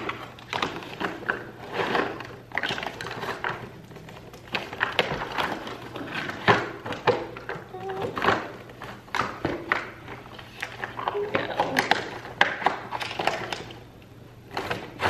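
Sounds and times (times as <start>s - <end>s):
plastic toy clicks and knocks: 10.6s - 13.8s.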